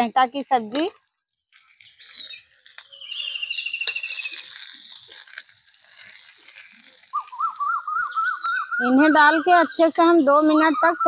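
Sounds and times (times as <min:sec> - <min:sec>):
trilling chirp: 0:01.8 - 0:05.0
small scraping clicks: 0:03.7 - 0:07.2.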